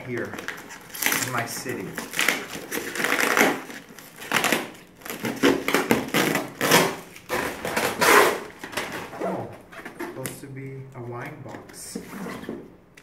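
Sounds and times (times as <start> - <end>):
paper and tape ripping: 0.0 - 9.5.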